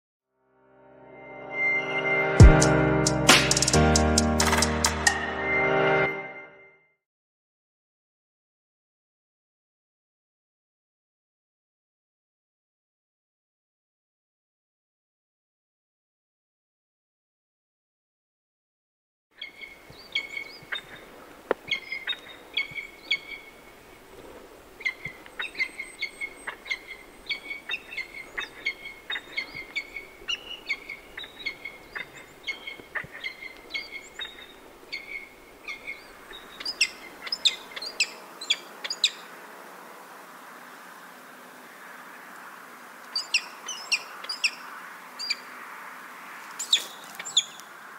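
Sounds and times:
falcon calls: 19.4 - 39.3
background hiss: 19.7 - 47.9.

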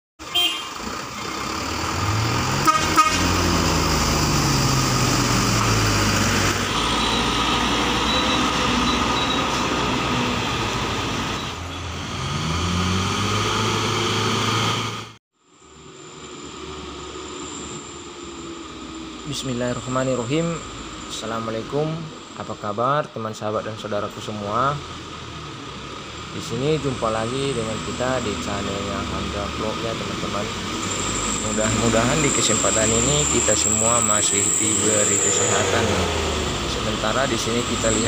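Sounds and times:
truck horn toots: 0.2 - 1.0, 2.5 - 3.6
diesel truck engines revving: 0.2 - 38.0.

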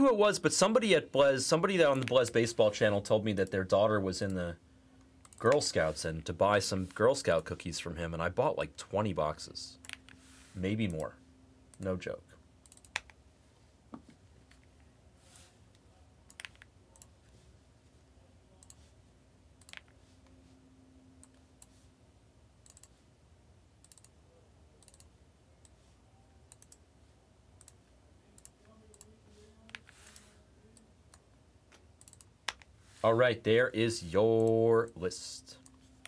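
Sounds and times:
mouse and keyboard clicking: 16.3 - 17.1.

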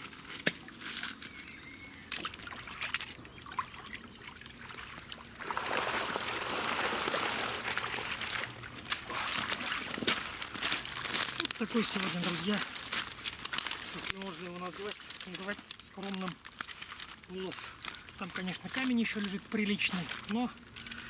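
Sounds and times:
small splashes: 2.1 - 14.2
water pouring and rushing: 2.1 - 15.6.

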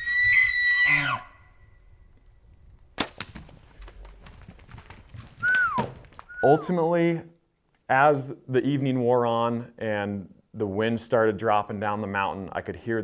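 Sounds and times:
elk bugling: 0.0 - 1.6, 5.4 - 6.8.

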